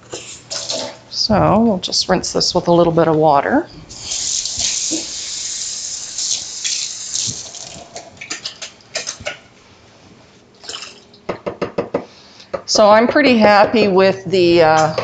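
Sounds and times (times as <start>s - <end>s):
water running from tap: 3.9s - 8.4s.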